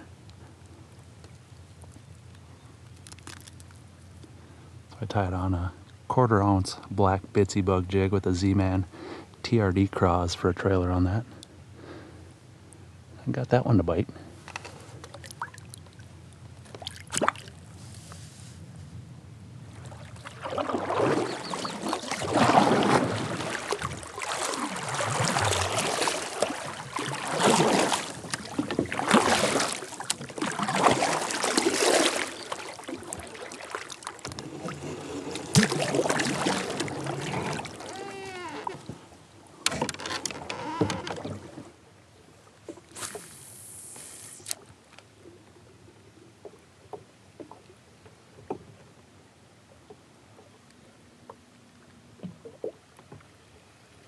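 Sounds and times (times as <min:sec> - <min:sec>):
paddle strokes splashing water: 0:14.5 - 0:18.6, 0:19.7 - 0:45.0
fishing cast hiss: 0:42.9 - 0:44.6.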